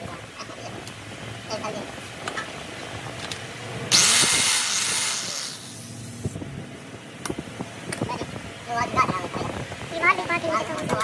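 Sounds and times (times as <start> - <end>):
compressed air blast hissing: 3.9 - 6.4.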